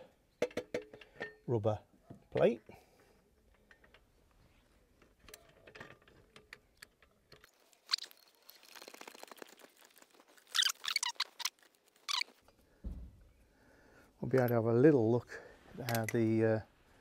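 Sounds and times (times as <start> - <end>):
small clicks and knocks: 2.3 - 4.1, 5.0 - 9.7.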